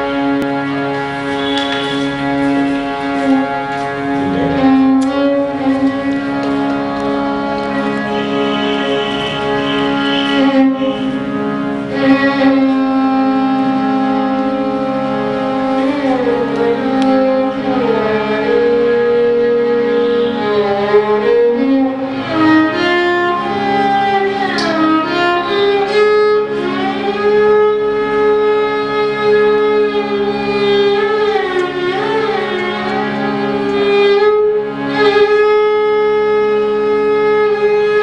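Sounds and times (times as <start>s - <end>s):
violin playing slow melody: 0.0s - 38.0s
low drone tone: 1.2s - 12.7s.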